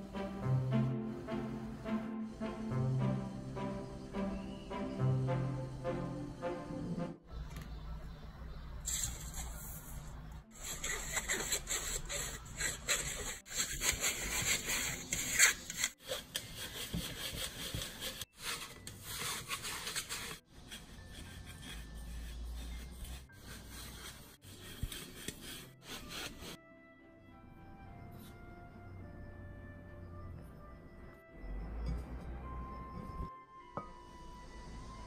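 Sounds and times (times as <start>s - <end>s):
flour rasping through mesh sieve: 10.6s - 26.6s.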